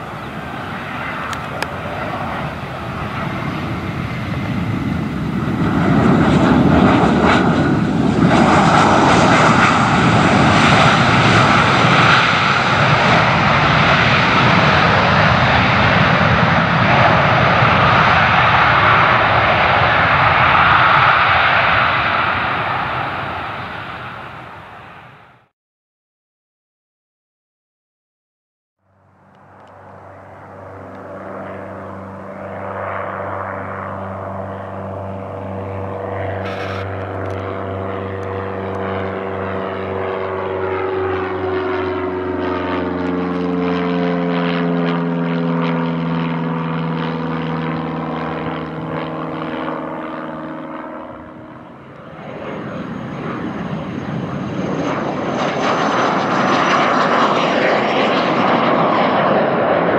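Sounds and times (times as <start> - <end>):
jet passing low: 0.0 - 25.5, 28.9 - 59.9
propeller plane droning overhead: 0.0 - 25.5, 28.8 - 59.9
high whine: 34.9 - 39.2.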